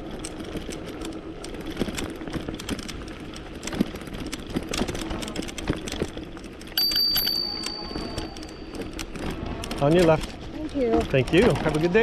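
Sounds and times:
electric bike motor humming: 0:00.0 - 0:10.9
bike rattling over rough trail: 0:00.0 - 0:12.0
bicycle bell ringing: 0:06.7 - 0:09.4.

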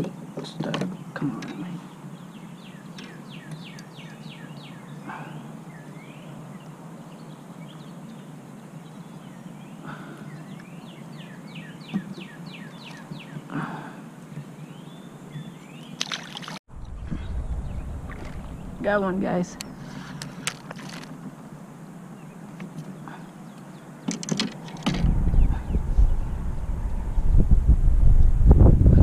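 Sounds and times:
bird chirping: 0:00.0 - 0:13.6, 0:14.3 - 0:20.2, 0:21.8 - 0:27.4
water lapping at a hull: 0:16.0 - 0:17.3, 0:17.9 - 0:19.1
wind buffeting the microphone: 0:16.7 - 0:20.2, 0:24.7 - 0:29.0
light handling noise: 0:19.6 - 0:21.5.

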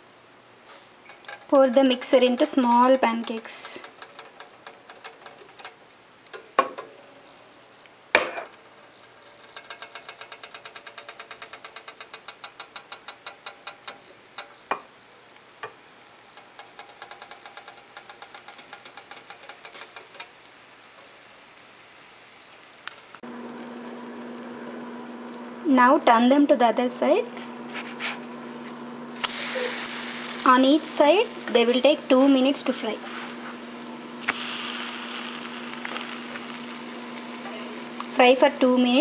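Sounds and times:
pancakes sizzling in a pan: 0:00.7 - 0:05.8, 0:08.1 - 0:26.3, 0:27.3 - 0:39.0
rapid ticking: 0:01.1 - 0:05.8, 0:09.4 - 0:14.6, 0:16.3 - 0:20.3.

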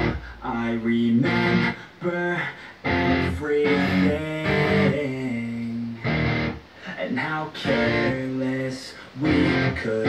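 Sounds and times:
guitar-led music over speakers: 0:00.0 - 0:00.4, 0:01.2 - 0:01.8, 0:02.6 - 0:06.7, 0:07.6 - 0:08.4, 0:09.2 - 0:10.0.

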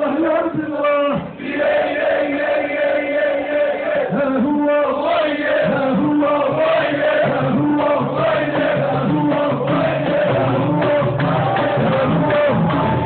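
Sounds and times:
men chanting in chorus: 0:01.4 - 0:13.0.

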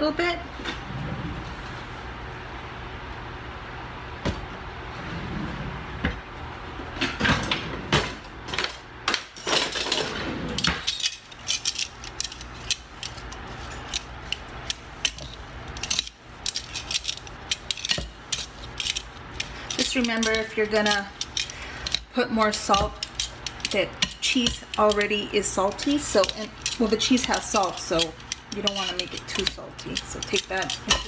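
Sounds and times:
tongs clicking on glass bowl: 0:19.7 - 0:31.0.

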